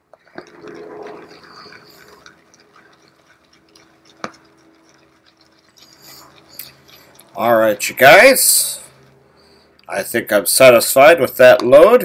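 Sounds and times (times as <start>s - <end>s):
shaving brush swishing lather: 0.3s - 9.0s.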